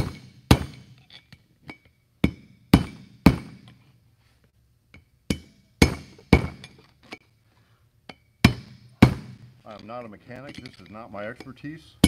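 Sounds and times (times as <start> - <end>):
hammer striking steel: 0.0 - 1.0, 1.7 - 3.8, 4.9 - 7.2, 8.1 - 9.5.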